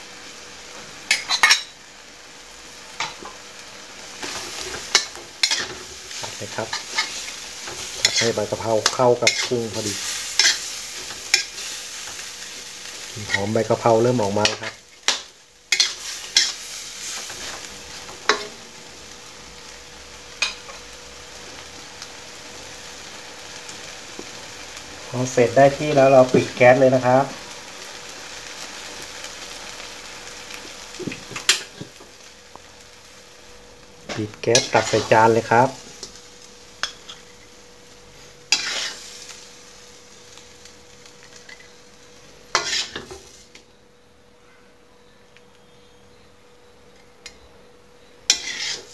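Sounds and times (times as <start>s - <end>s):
food sizzling in a wok: 0.0s - 44.1s, 45.6s - 48.9s
metal spatula stirring: 4.2s - 12.2s, 13.2s - 17.6s, 34.1s - 35.3s, 38.5s - 39.0s, 42.5s - 43.2s, 48.3s - 48.9s.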